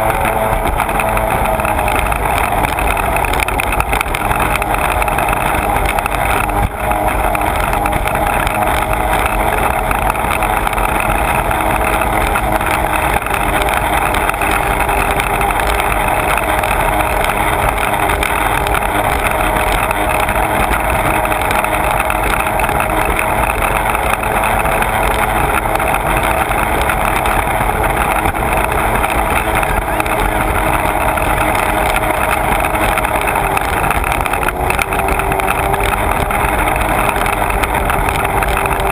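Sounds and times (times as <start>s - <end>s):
watercraft engine drone: 0.0s - 38.9s.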